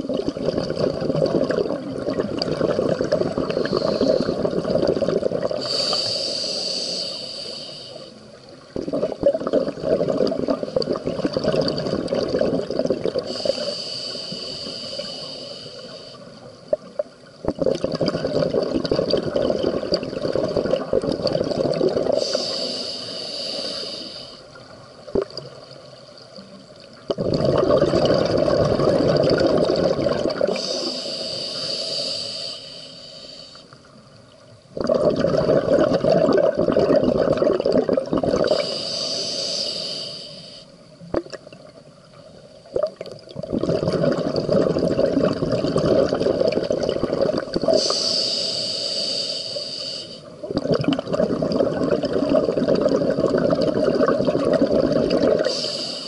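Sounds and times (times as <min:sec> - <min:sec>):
regulator hissing inhale: 0:03.5 - 0:04.6, 0:05.6 - 0:08.2, 0:13.3 - 0:16.5, 0:22.2 - 0:24.5, 0:30.5 - 0:33.8, 0:38.4 - 0:40.8, 0:47.7 - 0:50.4, 0:55.4 - 0:56.0
exhaust bubbles rushing: 0:27.1 - 0:30.5.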